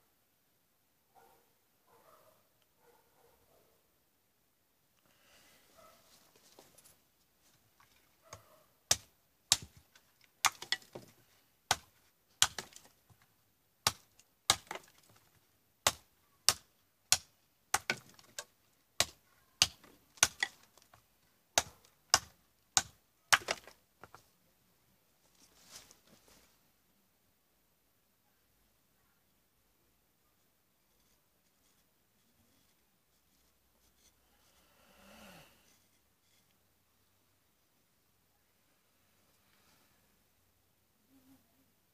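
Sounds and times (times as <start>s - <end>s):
knife chopping a branch on wood: 8.9s - 9.8s, 10.4s - 11.1s, 11.7s - 12.9s, 13.8s - 15.2s, 15.8s - 20.9s, 21.6s - 23.7s.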